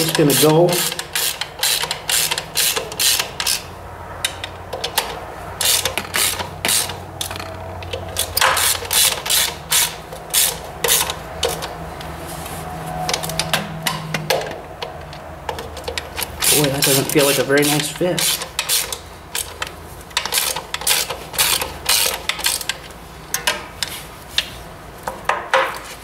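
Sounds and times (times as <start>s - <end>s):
ratchet wrench clicking: 0.0s - 11.7s, 14.8s - 23.9s.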